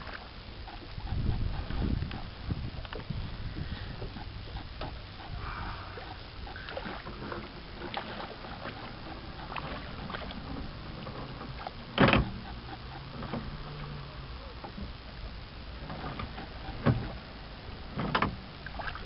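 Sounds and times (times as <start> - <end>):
water wash: 4.1 - 19.0.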